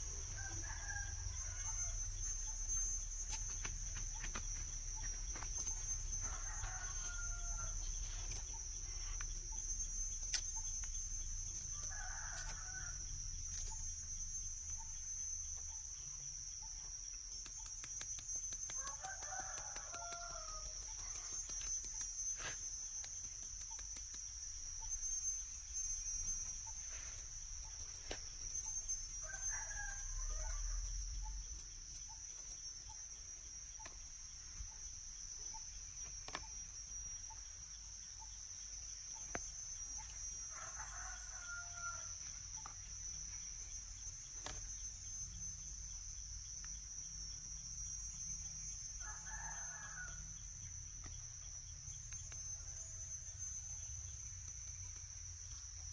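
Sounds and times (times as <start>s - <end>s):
high-pitched insect drone: 0.0s - 55.9s
rooster crowing: 0.2s - 2.6s, 6.2s - 8.0s, 11.8s - 13.1s, 18.8s - 20.8s, 29.2s - 30.9s, 40.4s - 42.2s, 49.0s - 50.3s.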